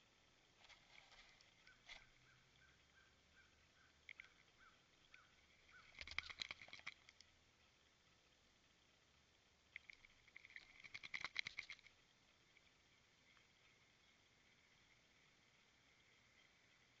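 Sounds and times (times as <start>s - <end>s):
small animal chirping: 1.6s - 7.1s, 9.8s - 11.9s.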